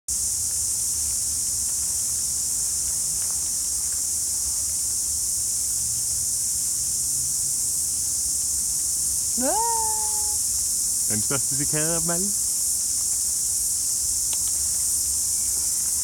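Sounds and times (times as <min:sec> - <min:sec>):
cicadas shrilling: 0:07.5 - 0:16.0.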